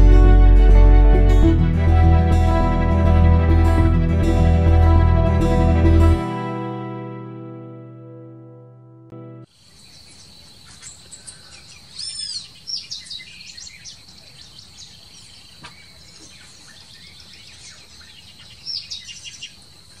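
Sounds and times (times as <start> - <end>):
birds chirping and whistling: 9.8 - 19.6.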